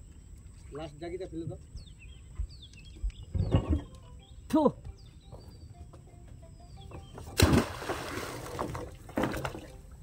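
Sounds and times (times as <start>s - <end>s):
anchor splashing into water: 7.3s - 9.7s
churning water: 7.4s - 9.8s.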